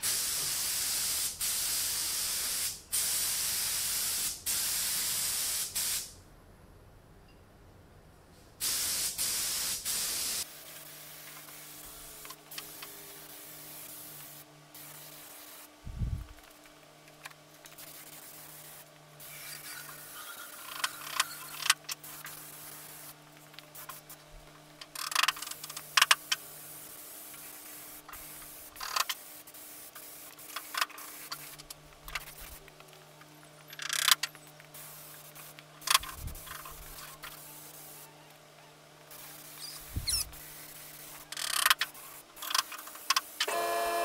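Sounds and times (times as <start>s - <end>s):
paint spray gun hissing: 0.0s - 6.2s, 8.6s - 15.7s, 26.8s - 31.6s, 34.8s - 38.0s, 39.1s - 44.0s.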